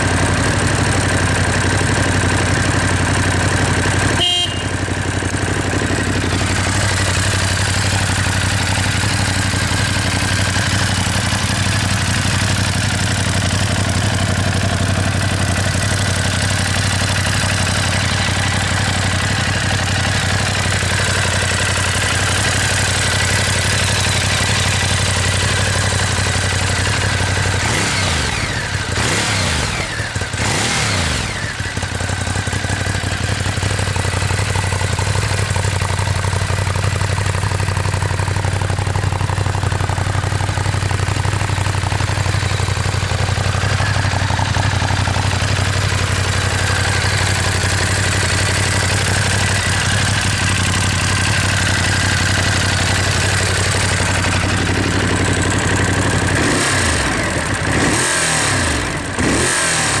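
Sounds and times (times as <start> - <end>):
motorcycle engine idling: 0.0 - 60.0
motorcycle throttle blips: 3.5 - 12.8.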